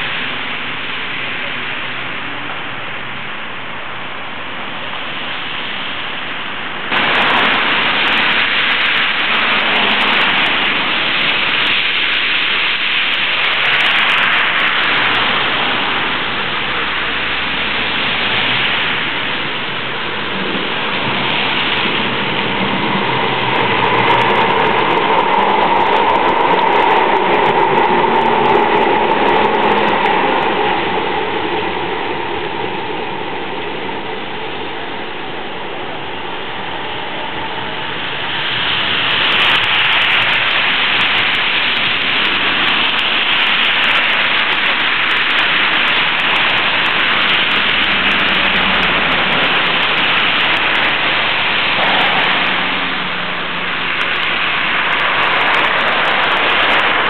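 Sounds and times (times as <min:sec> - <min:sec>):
tyres hissing on wet road: 0:00.0 - 0:57.0
tram running tone: 0:13.0 - 0:57.0.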